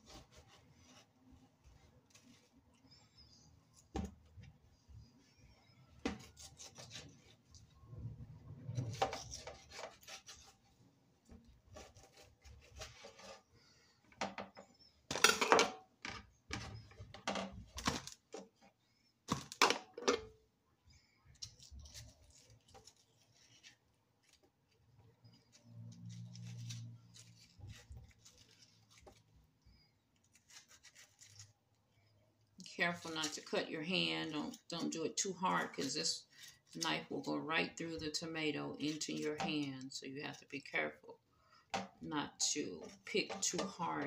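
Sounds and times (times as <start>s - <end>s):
knife scraping tomato: 0.0s - 1.2s, 6.1s - 7.7s, 8.8s - 10.8s, 11.6s - 13.5s, 30.2s - 31.7s.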